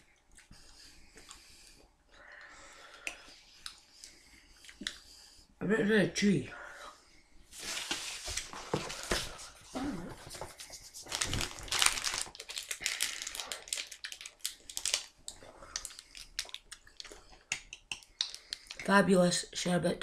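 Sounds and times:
plastic wrappers crinkling: 0:07.6 - 0:17.2.

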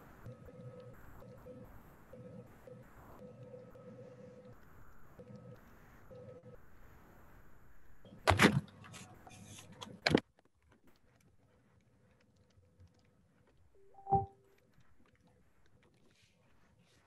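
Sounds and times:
faint hum: 0:00.0 - 0:08.2, 0:12.9 - 0:16.6.

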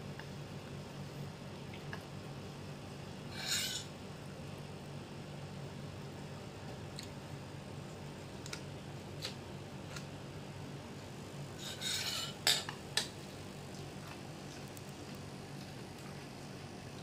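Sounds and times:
utensil scraping bowl: 0:03.3 - 0:03.9, 0:11.6 - 0:12.7
utensils clinking against ceramic bowl: 0:03.4 - 0:03.9, 0:11.6 - 0:12.7.

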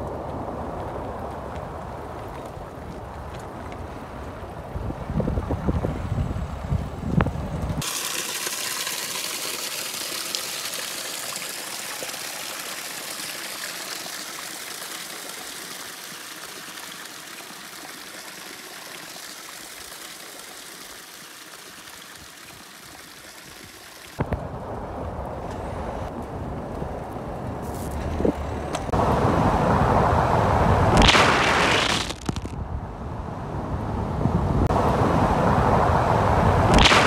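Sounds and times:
water gushing onto rock: 0:07.8 - 0:24.2
low rumbling noise: 0:24.2 - 0:37.0.

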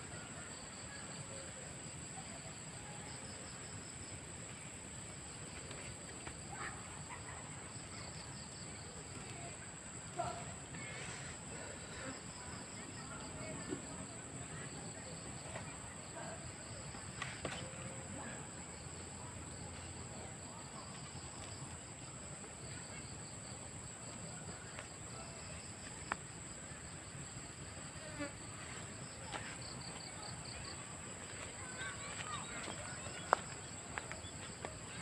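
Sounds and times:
insects buzzing drone: 0:26.0 - 0:29.2.

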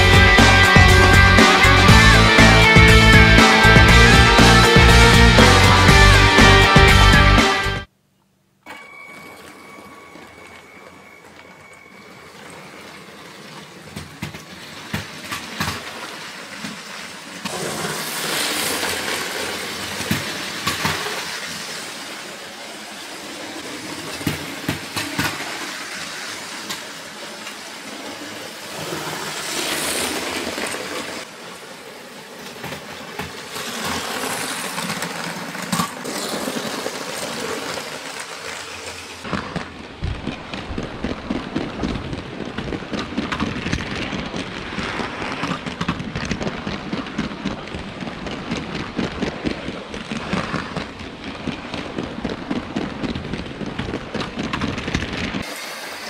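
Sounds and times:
toy train wheels clicking on track: 0:32.4 - 0:39.2.

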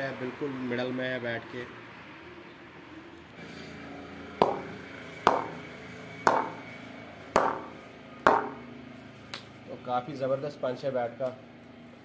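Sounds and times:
ball knocking on wooden bat: 0:04.4 - 0:05.6, 0:06.3 - 0:06.7, 0:07.4 - 0:08.6.

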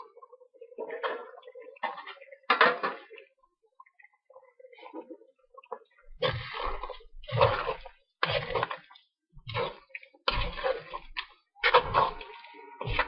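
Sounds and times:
metal spoon stirring food in wok: 0:06.6 - 0:13.0.

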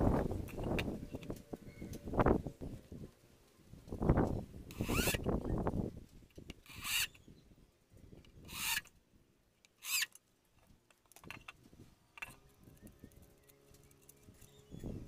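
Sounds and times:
power drill driving screws into wood: 0:04.7 - 0:05.3, 0:06.6 - 0:07.2, 0:08.4 - 0:08.9, 0:09.8 - 0:10.2.

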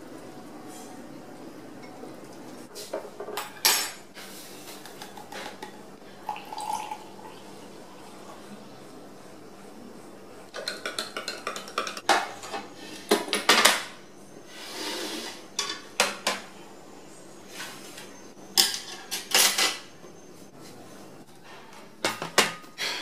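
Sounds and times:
dishes knocking on a plastic tray: 0:10.6 - 0:12.4.

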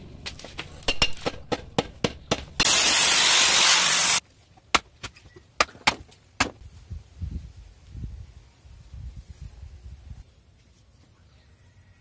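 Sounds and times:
steam hissing: 0:02.6 - 0:04.2.

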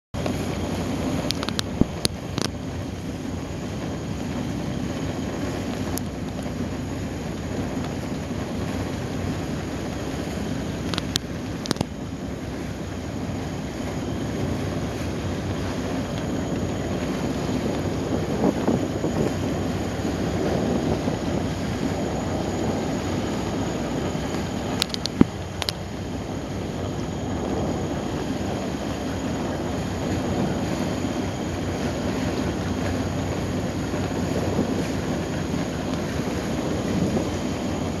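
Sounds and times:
boat engine rumble: 0:00.2 - 0:38.0
water wash: 0:00.2 - 0:38.0
wind on microphone: 0:00.2 - 0:38.0.

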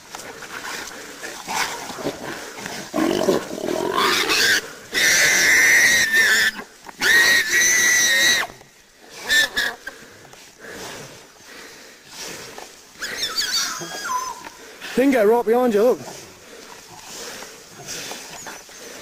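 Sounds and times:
pig squealing: 0:03.0 - 0:08.5, 0:09.2 - 0:09.9, 0:13.0 - 0:14.5
grunting squeals: 0:13.0 - 0:14.5.

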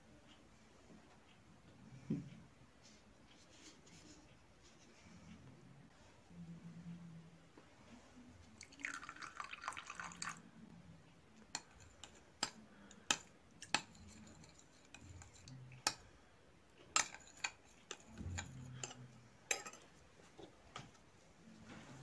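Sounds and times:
liquid pouring into glass bowl: 0:08.6 - 0:10.4.

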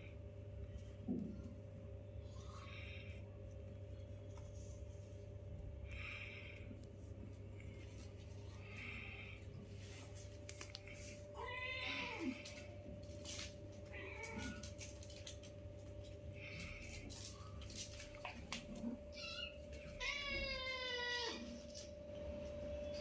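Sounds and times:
cats meowing: 0:11.3 - 0:12.7, 0:13.7 - 0:15.0, 0:18.0 - 0:21.9.

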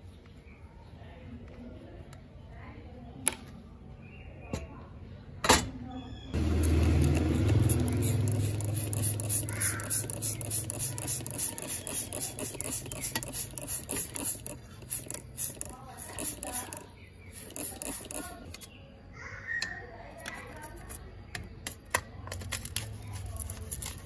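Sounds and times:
wet fingers scrubbing watch case: 0:07.1 - 0:18.4.

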